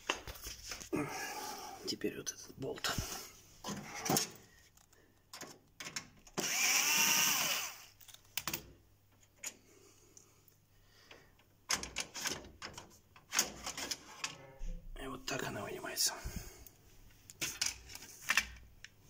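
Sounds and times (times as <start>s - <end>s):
cordless screwdriver running: 6.4s - 7.9s.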